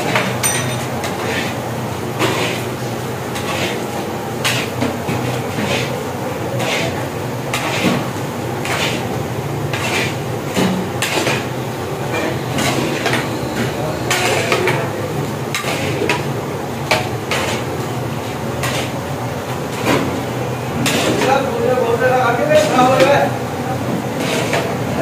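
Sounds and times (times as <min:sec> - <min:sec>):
metal spatula scraping a pan: 0:01.0 - 0:01.6, 0:02.2 - 0:14.9, 0:15.5 - 0:16.3, 0:16.9 - 0:19.0, 0:20.8 - 0:21.5, 0:24.1 - 0:24.8.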